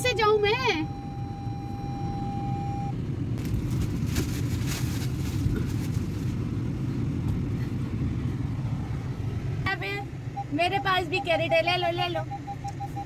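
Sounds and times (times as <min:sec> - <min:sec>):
held tone: 0:00.0 - 0:03.0
car rumble inside cabin: 0:00.0 - 0:13.0.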